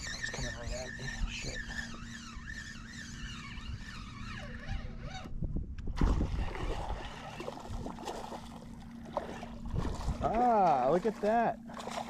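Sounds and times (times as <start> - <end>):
fishing reel gears whining: 0.0 - 5.3.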